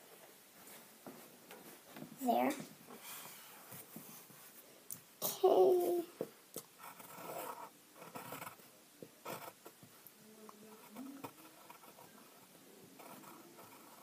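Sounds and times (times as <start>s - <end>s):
pencil scratching on paper: 6.8s - 8.6s, 9.2s - 9.8s, 10.7s - 14.0s.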